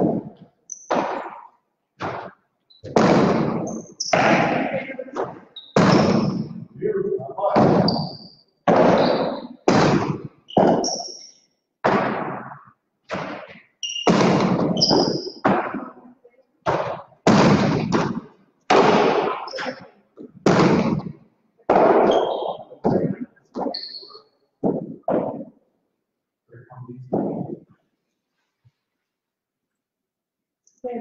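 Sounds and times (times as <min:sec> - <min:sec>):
hard balls smacking walls with echo: 0:00.0 - 0:25.9, 0:26.5 - 0:28.0
short high squeaks: 0:10.5 - 0:11.5, 0:13.8 - 0:14.1, 0:23.7 - 0:24.4.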